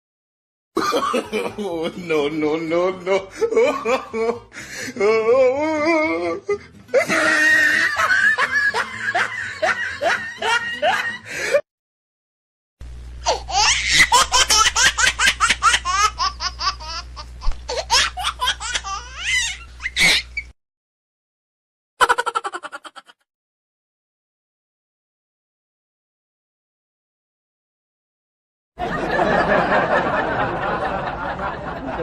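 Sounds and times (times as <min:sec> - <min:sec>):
hearty laughter: 0:03.1 - 0:04.7, 0:06.9 - 0:11.6, 0:28.8 - 0:32.0.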